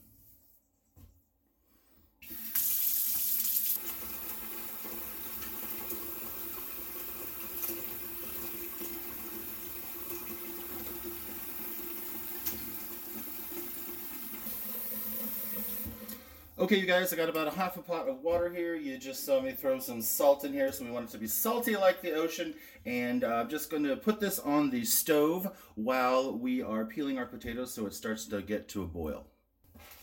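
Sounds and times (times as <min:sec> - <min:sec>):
faucet water running into pot: 0:02.2 - 0:16.4.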